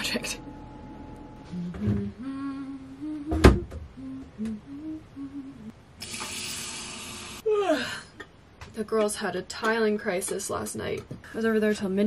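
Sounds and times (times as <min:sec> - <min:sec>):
woman humming: 0:01.4 - 0:05.7, 0:07.4 - 0:08.0.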